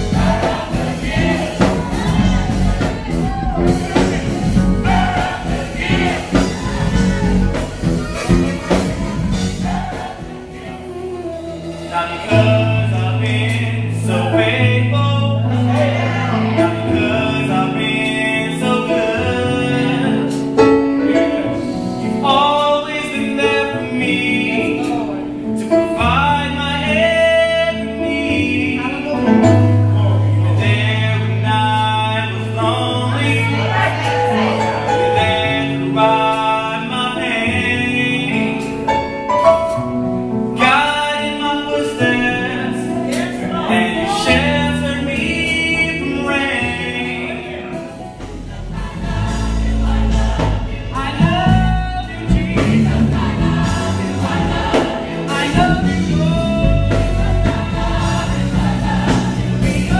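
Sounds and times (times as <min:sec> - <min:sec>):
backing vocalists: 0:00.0 - 0:59.9
bass: 0:00.0 - 0:59.9
man singing lead: 0:00.0 - 0:59.9
sustained keyboard chords: 0:00.0 - 0:59.9.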